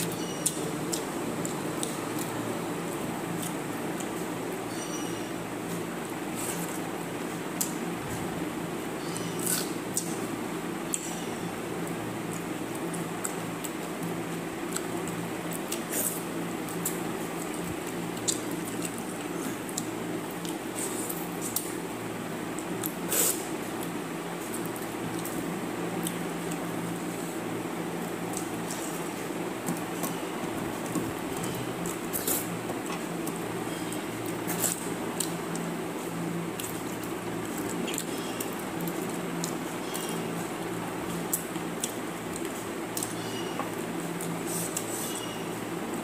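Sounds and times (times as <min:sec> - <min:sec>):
steady low hum: 0:00.0 - 0:46.0
chewing: 0:30.8 - 0:40.4.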